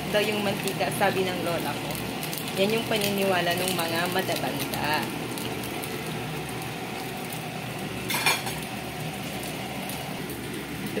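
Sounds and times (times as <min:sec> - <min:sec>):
fish sizzling in hot oil: 0:00.0 - 0:11.0
metal kitchenware clink: 0:08.1 - 0:08.6.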